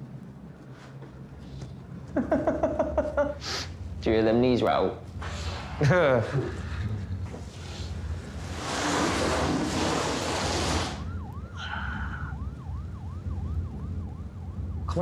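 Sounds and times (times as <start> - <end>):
loud rustling: 6.5 - 11.1
police siren yelping: 9.9 - 15.0.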